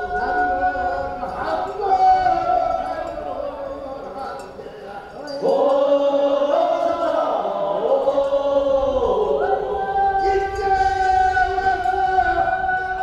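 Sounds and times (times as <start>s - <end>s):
voices singing long held notes: 0.0s - 13.0s.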